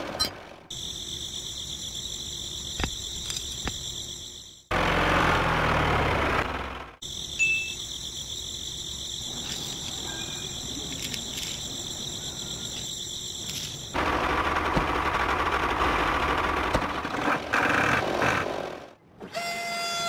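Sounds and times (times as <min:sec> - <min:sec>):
insect chorus trilling: 0:00.7 - 0:04.7, 0:07.0 - 0:14.0
faint chirp: 0:07.0 - 0:14.0.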